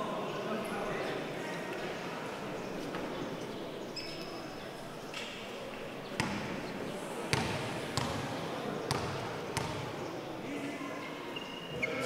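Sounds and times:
murmur of voices: 0.0 - 12.0
basketball bouncing on gym floor: 6.2 - 6.5, 7.3 - 8.2, 8.9 - 9.8.

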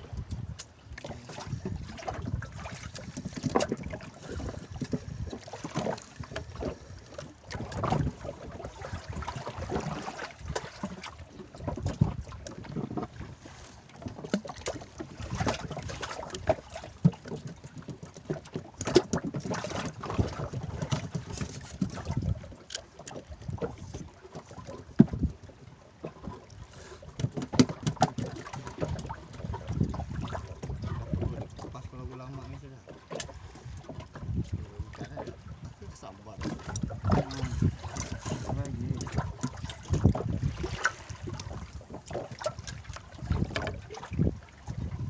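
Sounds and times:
wind on microphone: 0.0 - 13.5, 14.7 - 17.1, 19.1 - 22.6, 23.3 - 25.5, 27.2 - 45.0
waves slapping against boat hull: 0.0 - 45.0
knocks against boat: 2.9 - 6.8, 16.4 - 22.8, 24.4 - 25.3, 27.1 - 29.2, 33.0 - 35.8, 36.4 - 41.4.

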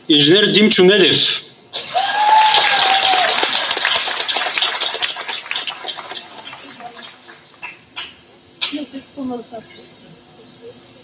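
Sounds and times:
crowd applauding: 1.8 - 8.2
crowd cheering: 1.8 - 8.2.

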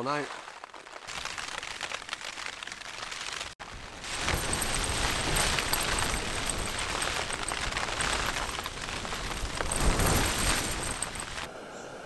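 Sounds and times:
rain beating on tent: 0.0 - 11.5
tent fabric flapping: 0.0 - 11.5
gale wind buffeting tent: 3.6 - 11.5.

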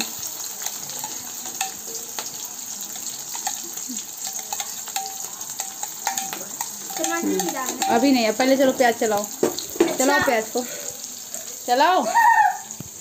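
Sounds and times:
onions sizzling in hot oil: 0.0 - 13.0
spoon clinking on glass dish: 0.6 - 2.0, 3.3 - 8.4.

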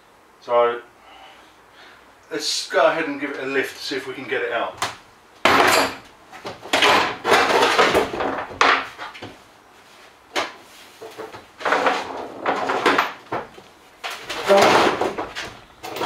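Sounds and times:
metal panel scraping and knocking: 11.0 - 13.5.

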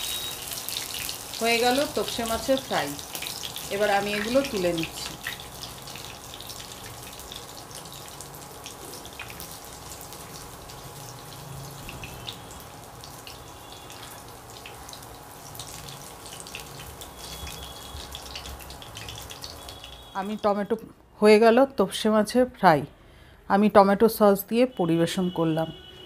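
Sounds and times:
fish frying in hot oil: 0.0 - 20.4.

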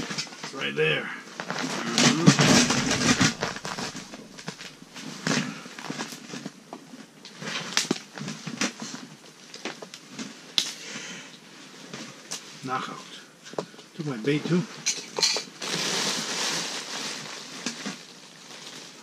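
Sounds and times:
rustling: 1.3 - 10.5, 15.5 - 19.0.

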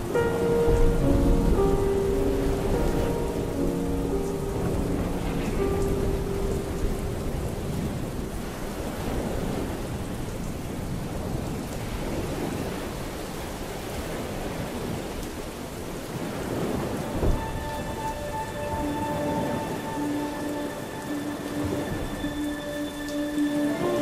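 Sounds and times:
low thunder rumble: 0.0 - 20.8
steady rain: 0.0 - 24.0
held music note: 17.0 - 24.0.

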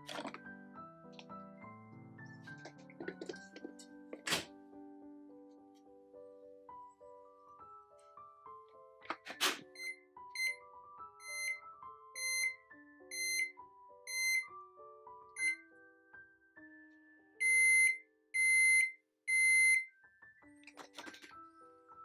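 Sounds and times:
soft piano music: 0.0 - 18.4, 19.8 - 22.0
long loud beeps: 17.4 - 19.9.

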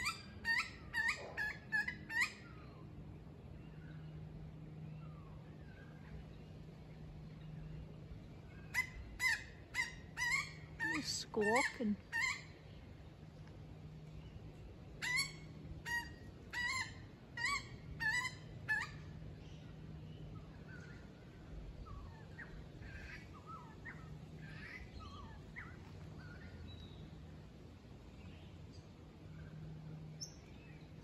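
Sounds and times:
birds squawking harshly: 0.0 - 2.8, 8.6 - 12.6, 15.0 - 19.0.

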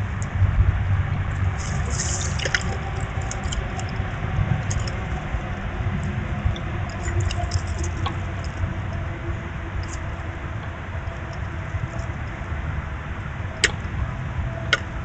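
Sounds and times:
low outdoor rumble: 0.0 - 15.0
squirrels clicking and rustling: 1.3 - 12.4.

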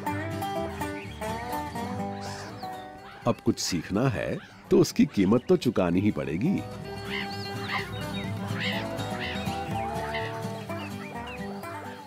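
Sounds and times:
background music: 0.0 - 12.0
meerkat pup squeaking: 7.0 - 11.2.

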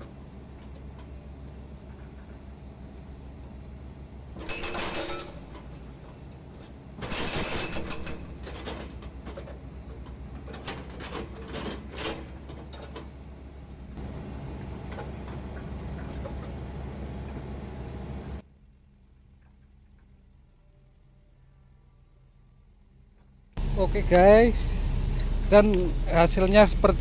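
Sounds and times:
diesel engine running: 8.0 - 18.4, 23.6 - 27.0.

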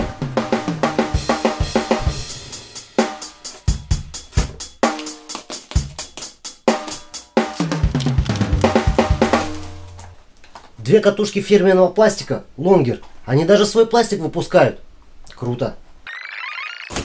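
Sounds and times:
background music with drum beat: 0.0 - 10.0.

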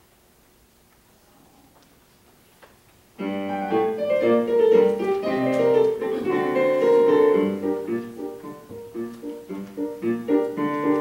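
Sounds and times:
piano playing chords: 3.2 - 11.0.

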